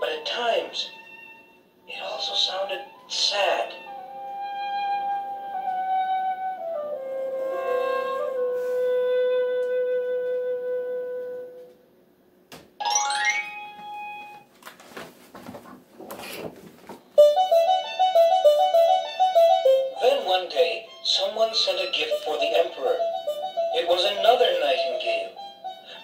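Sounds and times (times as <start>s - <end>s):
held flute-like note: 3.8s - 11.8s, 22.1s - 26.0s
tinkling keyboard melody: 12.8s - 14.4s, 17.2s - 25.8s.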